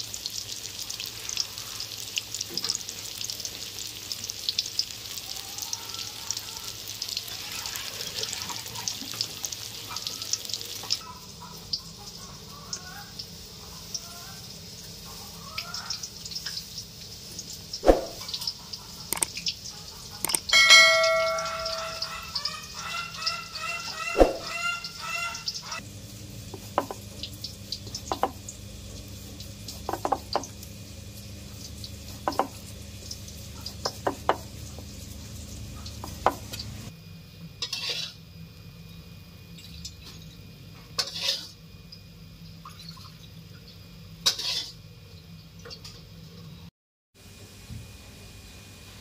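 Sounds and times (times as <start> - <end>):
metal spatula scraping wok: 37.6 - 38.2, 41.0 - 41.5, 44.3 - 44.8.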